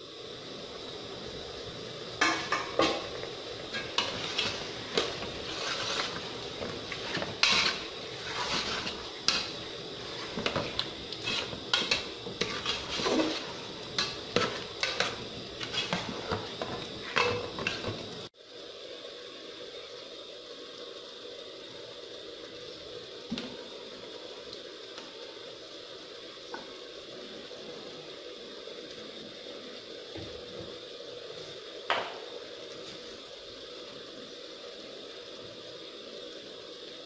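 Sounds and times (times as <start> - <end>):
steady hiss: 0.0 - 37.0
metal ladle scraping a metal pot: 3.7 - 6.3, 6.9 - 18.0.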